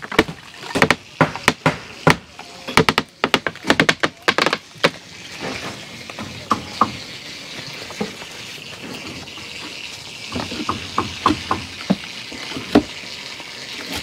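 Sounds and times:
wooden boards knocking and clattering: 0:00.0 - 0:07.0, 0:10.3 - 0:12.0.

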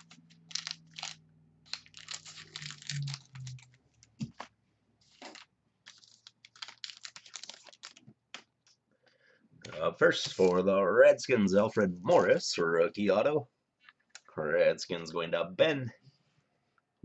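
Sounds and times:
trading cards rustling: 0:00.0 - 0:08.8.

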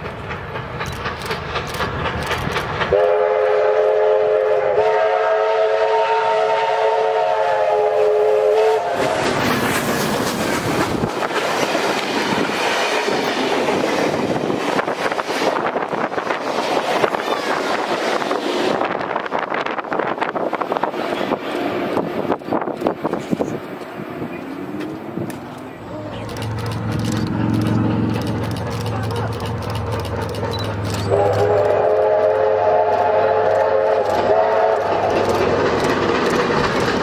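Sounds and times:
train wheels clattering: 0:00.0 - 0:04.8, 0:08.8 - 0:37.0
steam locomotive whistle: 0:02.9 - 0:09.4, 0:31.0 - 0:35.2.

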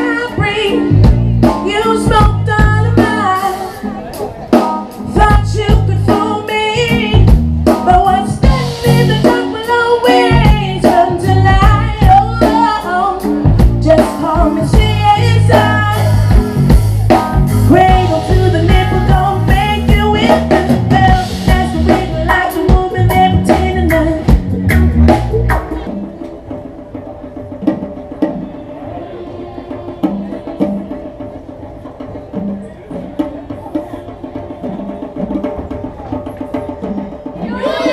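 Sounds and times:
woman singing lead: 0:00.0 - 0:04.1, 0:05.0 - 0:24.6, 0:37.4 - 0:37.9
bass guitar: 0:00.0 - 0:26.4
electric guitar: 0:00.0 - 0:26.6
drum kit: 0:00.0 - 0:37.9.

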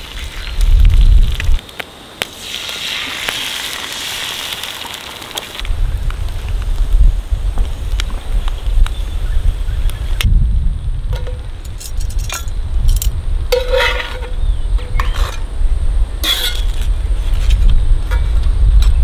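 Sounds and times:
wind buffeting microphone: 0:00.0 - 0:01.6, 0:05.6 - 0:19.0
utensils scraping a skillet: 0:11.7 - 0:15.5, 0:16.2 - 0:18.4.

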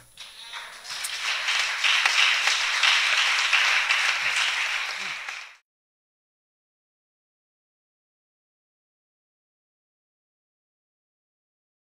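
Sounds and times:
congregation applauding: 0:00.2 - 0:05.6.

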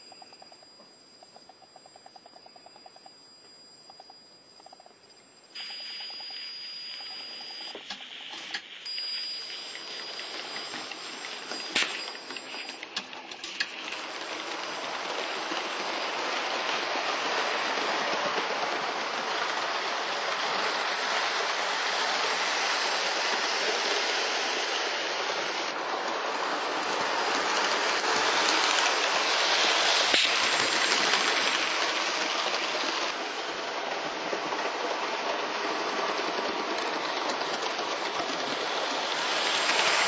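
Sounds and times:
wheels rolling on rails: 0:05.6 - 0:40.0
model steam locomotive hissing: 0:18.5 - 0:40.0.

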